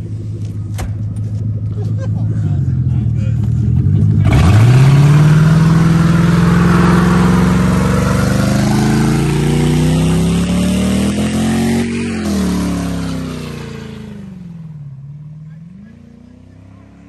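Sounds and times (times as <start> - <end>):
car engine revving high: 3.5 - 14.7.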